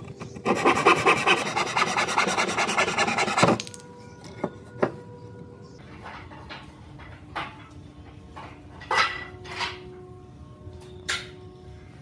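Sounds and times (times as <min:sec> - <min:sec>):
handsaw cutting wood: 0:00.4 - 0:03.6.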